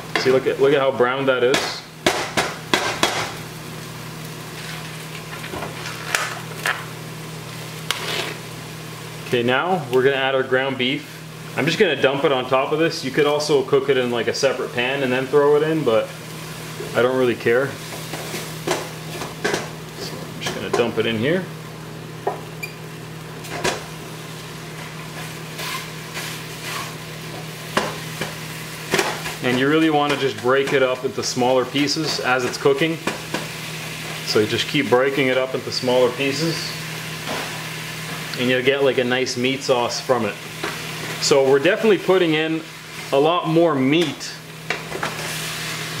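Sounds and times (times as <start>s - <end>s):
microwave oven humming: 0.0s - 46.0s
vegetables sizzling in a pot: 0.0s - 46.0s
wooden spoon scraping a pot: 7.9s - 8.4s, 25.1s - 27.0s.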